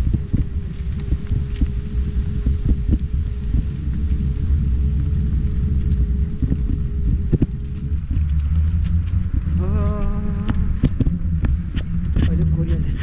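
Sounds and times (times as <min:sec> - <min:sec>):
road rumble: 0:00.0 - 0:13.0
wind on microphone: 0:00.0 - 0:13.0
electric motor whine: 0:04.7 - 0:11.4.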